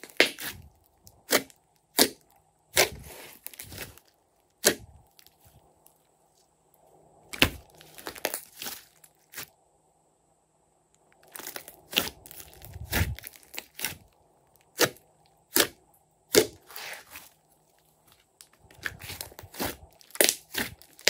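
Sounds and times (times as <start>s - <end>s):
slime squelching and crackling: 0.0s - 6.0s, 7.3s - 9.5s, 11.2s - 21.0s
sharp slime pops: 14.8s - 16.6s.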